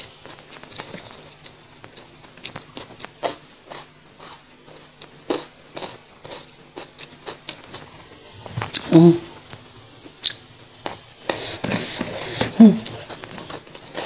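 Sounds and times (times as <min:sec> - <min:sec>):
person chewing crunchy beans: 0:00.2 - 0:07.9, 0:08.5 - 0:09.0.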